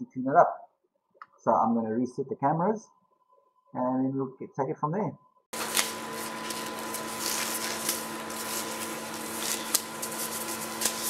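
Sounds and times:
steady machine hum: 5.6 - 11.0.

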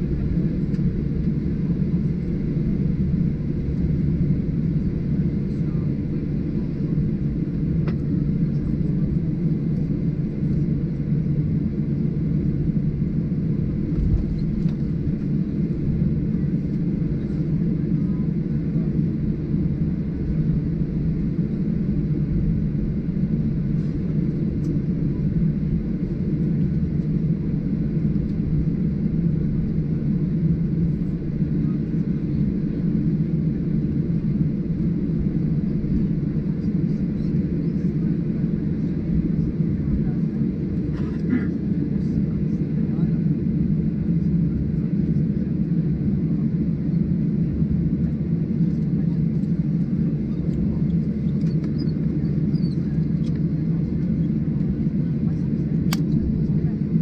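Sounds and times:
airliner cabin rumble: 0.0 - 57.0.

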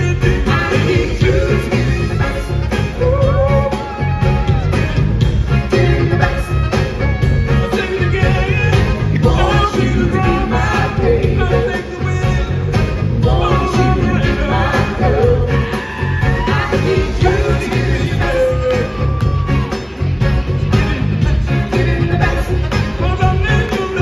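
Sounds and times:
man singing: 0.0 - 3.9, 5.5 - 6.8, 7.6 - 19.4, 21.4 - 24.0
backing singers: 0.0 - 7.0, 7.7 - 12.5, 13.1 - 20.1
bass guitar: 0.0 - 24.0
drums: 0.0 - 24.0
keyboards: 0.0 - 24.0.

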